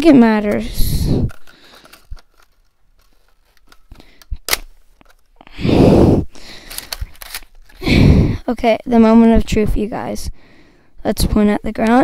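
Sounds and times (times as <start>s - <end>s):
plastic toy blaster clicks and rattles: 0.4s - 5.3s, 6.6s - 7.8s.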